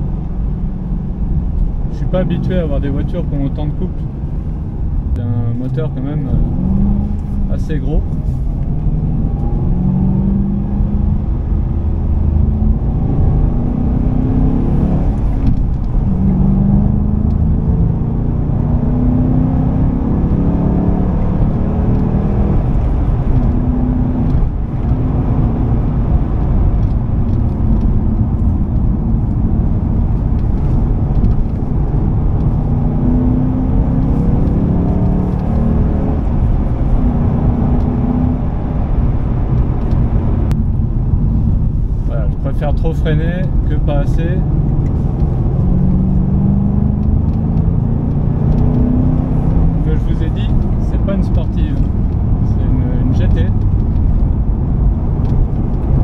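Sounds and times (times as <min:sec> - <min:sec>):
car engine accelerating through gears: 0:00.0 - 0:56.0.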